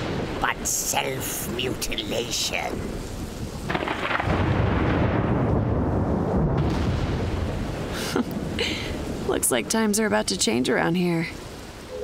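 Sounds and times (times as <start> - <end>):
thunder rumbling: 0.0 - 12.0.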